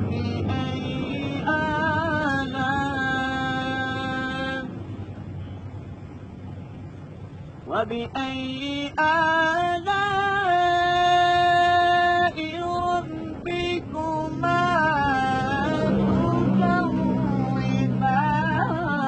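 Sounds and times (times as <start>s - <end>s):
man chanting melodically: 7.7s - 19.0s.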